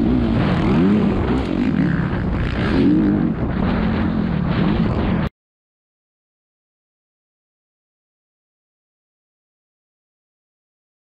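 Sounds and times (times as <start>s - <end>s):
dirt bike engine revving: 0.0s - 5.3s
wind rush on microphone: 0.0s - 5.3s.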